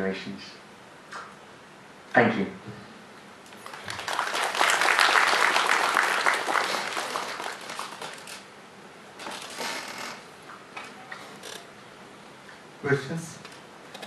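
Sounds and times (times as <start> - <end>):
audience applauding: 3.6 - 8.5.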